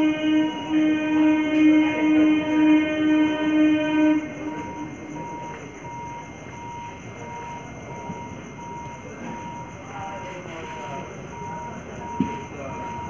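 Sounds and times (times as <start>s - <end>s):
train horn: 0.0s - 5.6s
steady background noise: 0.0s - 13.0s
faint high beep: 4.0s - 13.0s.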